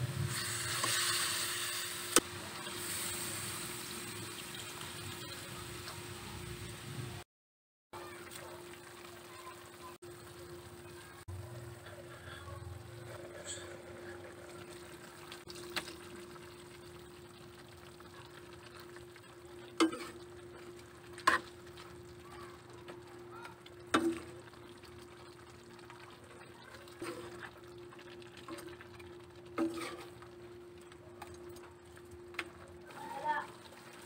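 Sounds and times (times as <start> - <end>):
soft sizzling: 8.0 - 34.0
spoon stirring in a pan: 18.6 - 22.0, 22.8 - 34.0
spoon clanking against pan: 19.8 - 20.2.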